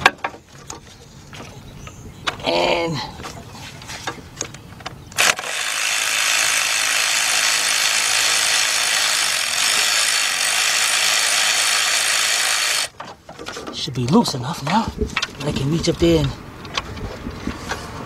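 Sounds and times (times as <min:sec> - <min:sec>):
power ratchet whirring: 0:05.1 - 0:12.9.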